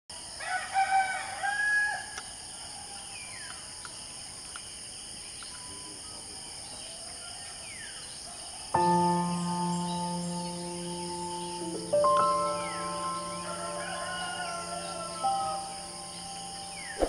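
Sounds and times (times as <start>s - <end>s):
insects chorus: 0.1s - 17.0s
rooster crowing: 0.4s - 2.2s, 12.1s - 17.0s
music: 8.8s - 17.0s.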